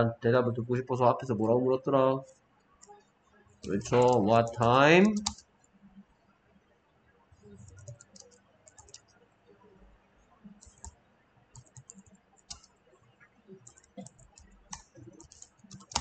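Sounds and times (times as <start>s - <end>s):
computer keyboard typing: 3.6s - 5.4s, 7.6s - 9.1s, 10.5s - 12.7s, 13.6s - 16.0s.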